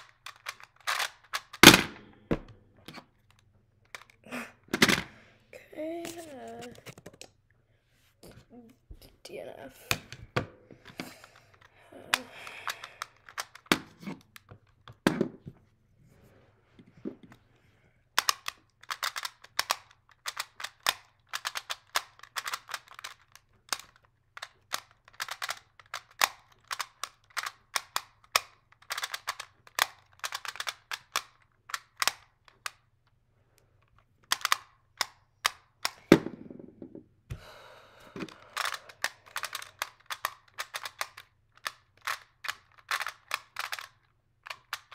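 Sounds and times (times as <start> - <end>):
puzzle clicking rapidly: 0.0 - 1.7, 11.1 - 14.8, 18.2 - 32.8, 34.2 - 36.1, 38.3 - 44.9.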